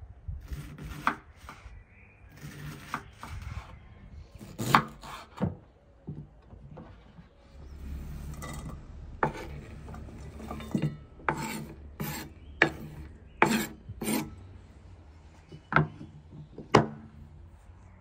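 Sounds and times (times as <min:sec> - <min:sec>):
scraping and rubbing strokes: 0:07.0 - 0:14.9.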